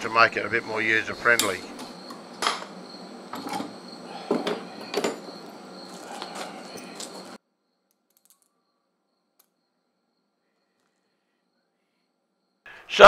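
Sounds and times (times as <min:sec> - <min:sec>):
steady background noise: 0:00.0 - 0:07.4.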